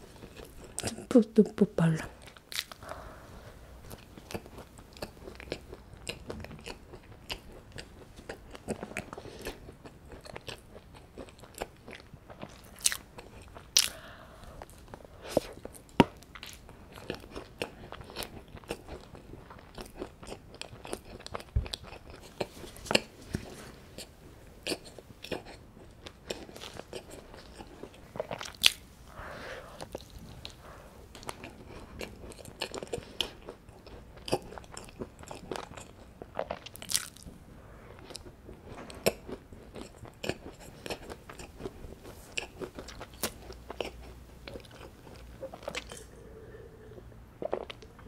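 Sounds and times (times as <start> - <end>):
biting and chewing scone: 2.2 - 2.9, 3.8 - 14.0, 24.0 - 28.8, 29.8 - 37.3.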